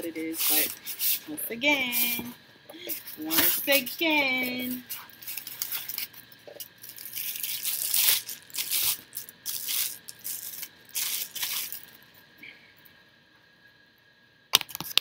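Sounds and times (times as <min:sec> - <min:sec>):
packaging rustling and crinkling: 0:00.4 - 0:01.2, 0:04.8 - 0:12.0.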